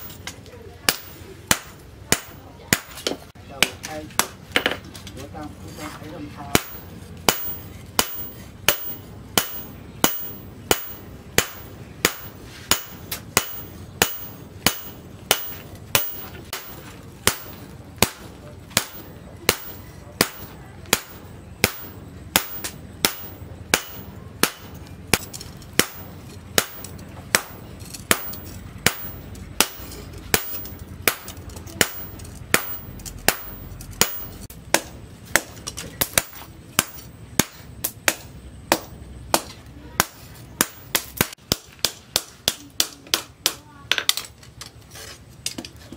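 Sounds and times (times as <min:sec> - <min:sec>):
hammer clanging on anvil: 0:00.0 - 0:00.3, 0:00.9 - 0:03.2, 0:06.5 - 0:37.6.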